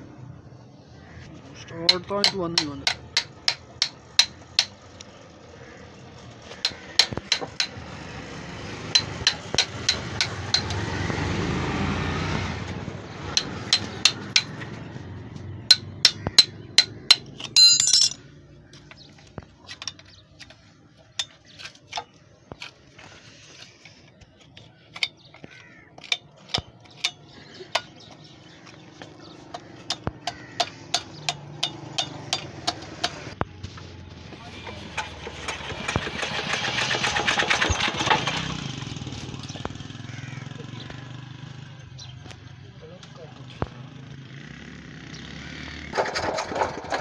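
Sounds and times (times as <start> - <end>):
hand tools clinking on metal: 15.7 - 18.3, 24.5 - 28.8, 29.5 - 33.2.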